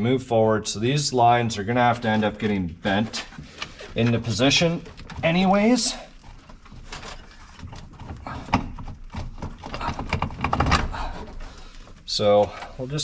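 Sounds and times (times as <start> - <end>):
metal parts clicking and knocking: 3.6 - 11.6.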